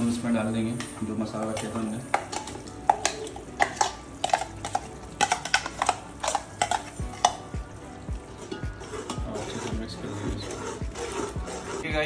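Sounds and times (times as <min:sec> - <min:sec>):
steel jar clinking on pot rim: 0:01.4 - 0:07.5.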